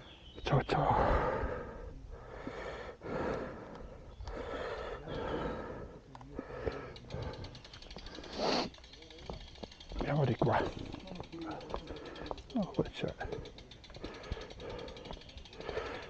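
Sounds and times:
person breathing hard: 0:00.8 - 0:08.8, 0:11.6 - 0:12.6, 0:13.2 - 0:16.0
fast fine ticking: 0:03.2 - 0:16.0.

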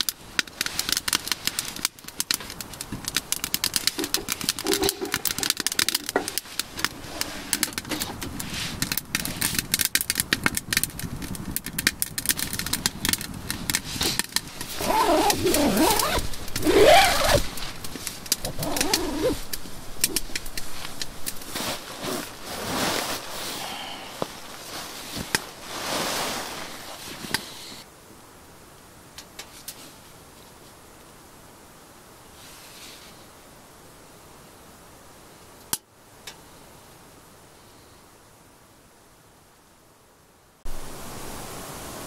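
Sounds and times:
wood fire crackling and popping: 0:00.0 - 0:27.5.

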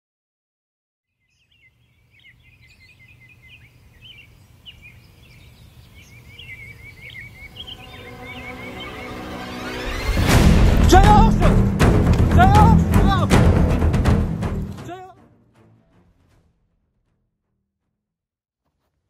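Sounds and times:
birds chirping and trilling: 0:01.1 - 0:10.8
music track: 0:07.5 - 0:16.9.

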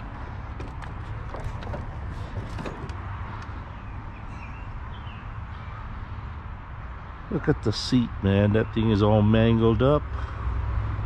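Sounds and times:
light clicks and knocks: 0:00.0 - 0:03.6.

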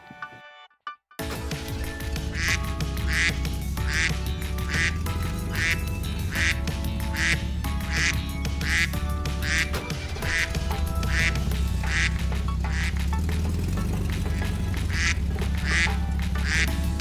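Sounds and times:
background music: 0:00.0 - 0:17.0
farm animal calling: 0:01.9 - 0:13.0, 0:14.4 - 0:16.8.

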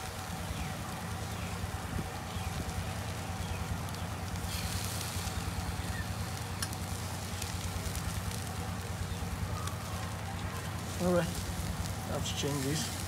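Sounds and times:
charcoal crackling: 0:00.0 - 0:13.0
meat sizzling on grill: 0:00.0 - 0:13.0
steady low hum: 0:00.0 - 0:13.0.

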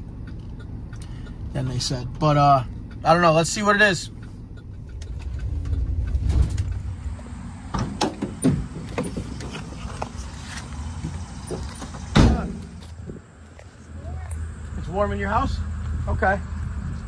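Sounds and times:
car cabin rumble: 0:00.0 - 0:13.3
sharp knocks and clicks: 0:02.6 - 0:09.6.

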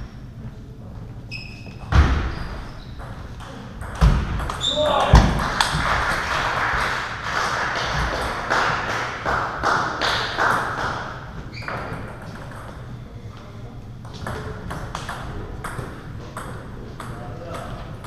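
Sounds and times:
table tennis balls tapping: 0:14.1 - 0:17.9.

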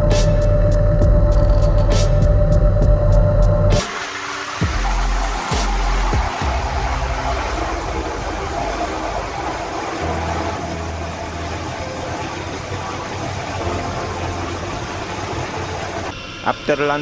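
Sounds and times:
helicopter idling: 0:04.1 - 0:17.0.

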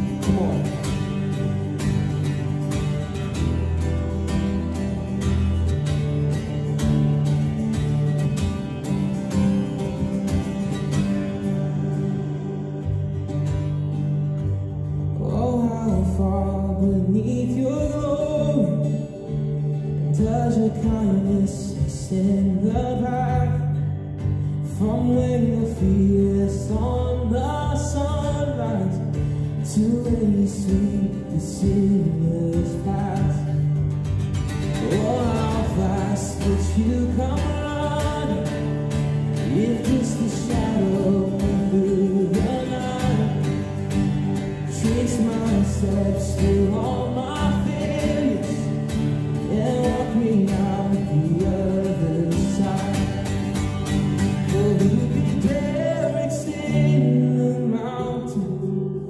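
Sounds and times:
man singing: 0:00.0 - 0:02.3, 0:15.2 - 0:33.9, 0:34.6 - 0:59.0
acoustic guitar: 0:00.0 - 0:59.0.

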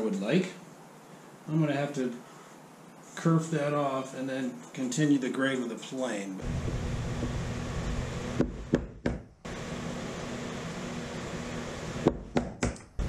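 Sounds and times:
steady background hum: 0:00.0 - 0:13.0
mallet tapping chisel in wood: 0:12.1 - 0:12.8.

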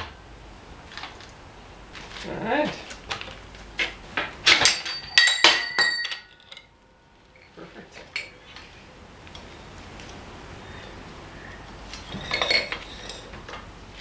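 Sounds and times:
metal parts clinking and clanking: 0:04.4 - 0:06.7, 0:12.0 - 0:13.6.

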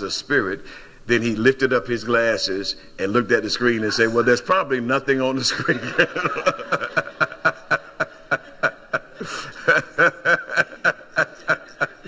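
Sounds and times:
man laughing heartily: 0:05.5 - 0:12.0.

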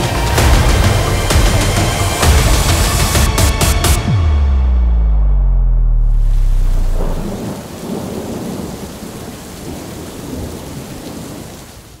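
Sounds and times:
low rumbling: 0:00.0 - 0:08.6
deep low note: 0:04.0 - 0:07.6
storm rushing hiss: 0:06.1 - 0:11.5.

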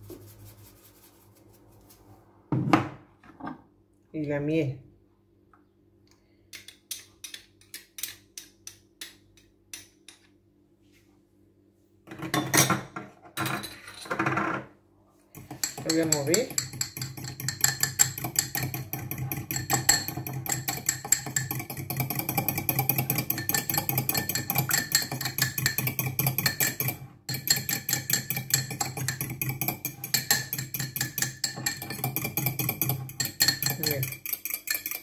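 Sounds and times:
fork whisking in ceramic bowl: 0:15.4 - 0:35.0.

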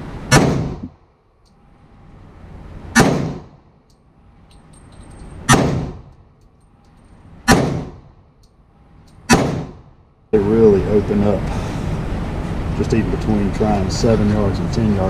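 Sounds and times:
gunshots echoing indoors: 0:00.3 - 0:00.9, 0:02.9 - 0:03.5, 0:05.5 - 0:06.1, 0:07.4 - 0:08.1, 0:09.3 - 0:10.0.

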